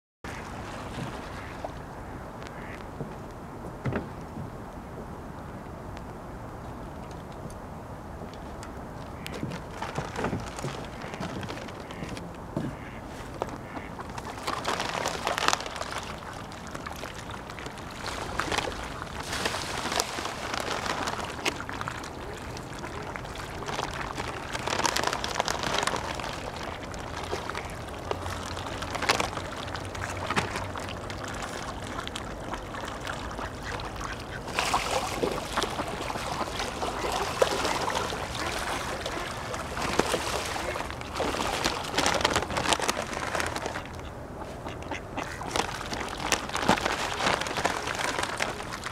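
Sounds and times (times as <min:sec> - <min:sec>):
ducks splashing in water: 0:00.3 - 0:03.0, 0:09.1 - 0:48.9
ducks quacking: 0:01.3 - 0:02.9, 0:10.9 - 0:14.0, 0:43.7 - 0:45.6.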